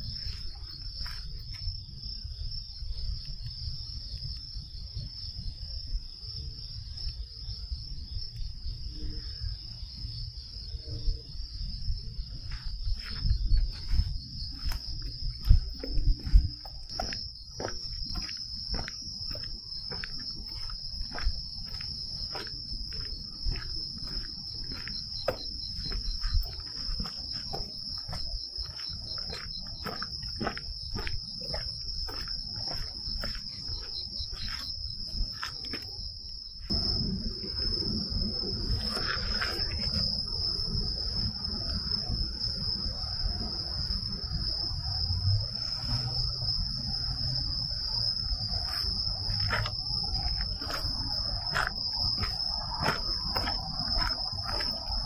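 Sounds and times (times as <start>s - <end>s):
footsteps on a trail: 0.0s - 1.8s, 12.2s - 37.0s, 47.4s - 55.0s
insects trilling: 0.0s - 55.0s
low rumbling noise: 36.7s - 42.2s.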